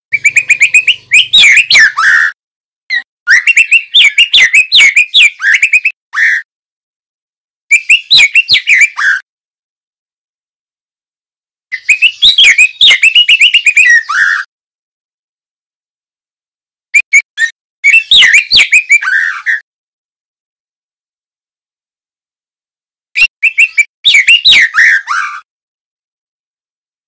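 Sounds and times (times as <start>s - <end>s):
bird singing whistled phrases: 0.1s - 6.5s, 7.7s - 9.2s, 11.8s - 14.5s, 17.0s - 19.6s, 23.2s - 25.4s.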